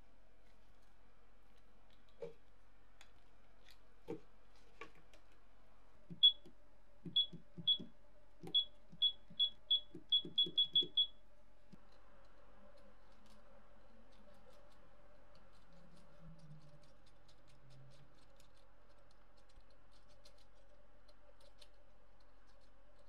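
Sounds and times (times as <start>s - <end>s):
short high beeps: 8.5s - 11.1s.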